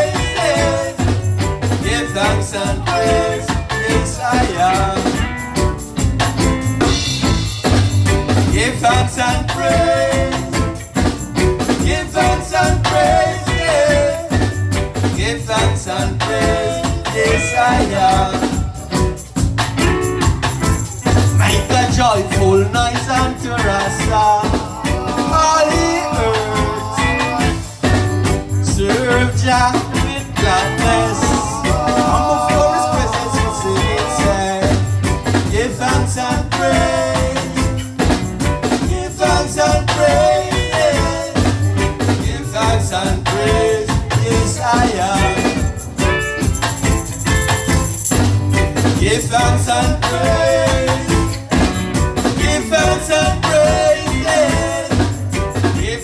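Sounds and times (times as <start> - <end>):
person singing: 0.0 - 5.4, 8.4 - 10.8, 11.6 - 14.5, 15.1 - 19.1, 21.1 - 37.8, 38.8 - 45.9, 49.0 - 56.0
acoustic guitar: 0.0 - 56.0
drum kit: 0.0 - 56.0
keyboard: 0.0 - 56.0
hand drums: 16.2 - 56.0.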